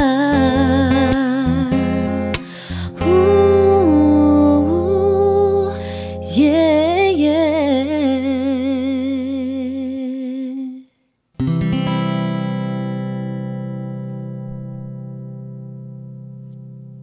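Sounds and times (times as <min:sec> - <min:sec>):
acoustic guitar chord strummed: 0:00.0 - 0:08.7, 0:11.4 - 0:17.0
person singing with vibrato: 0:00.0 - 0:10.9.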